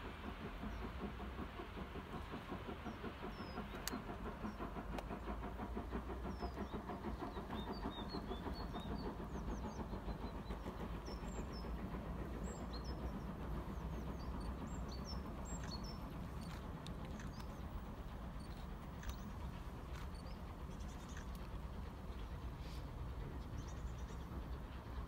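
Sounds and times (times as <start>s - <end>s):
distant steam locomotive chuffing: 0.0s - 25.0s
small birds chirping: 6.2s - 24.8s.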